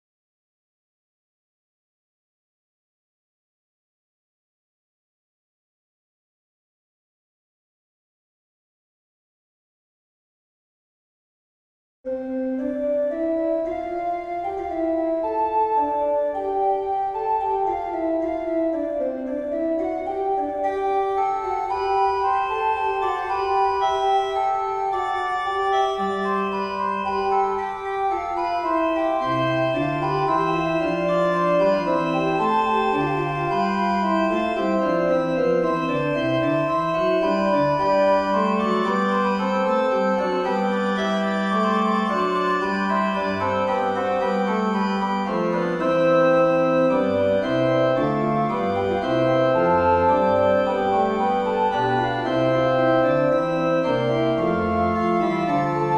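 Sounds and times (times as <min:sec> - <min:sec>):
organ fugue: 0:12.1 - 0:55.9.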